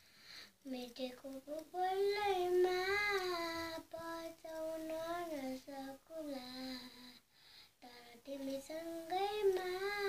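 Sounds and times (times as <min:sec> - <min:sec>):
breaths: 0:00.0 - 0:00.6, 0:07.1 - 0:07.8
girl singing unaccompanied: 0:00.5 - 0:10.0.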